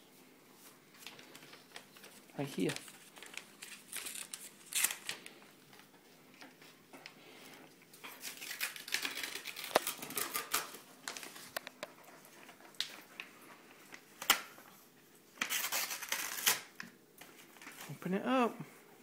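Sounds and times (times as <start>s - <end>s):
paper envelope crackling: 0.6s - 5.9s, 8.0s - 14.6s, 15.3s - 18.0s.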